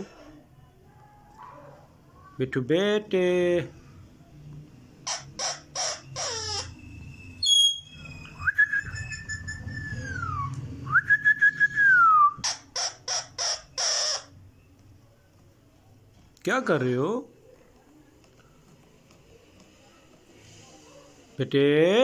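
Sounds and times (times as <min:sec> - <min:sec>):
parakeet squawking: 0:05.0 - 0:10.5, 0:12.4 - 0:14.5
parakeet whistling: 0:05.0 - 0:14.5.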